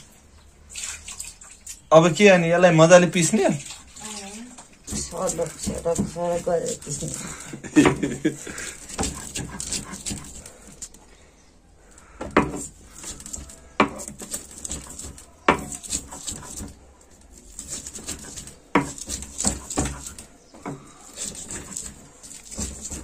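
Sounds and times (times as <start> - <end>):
gritty stone scraping: 3.8 - 11.0, 12.4 - 23.0.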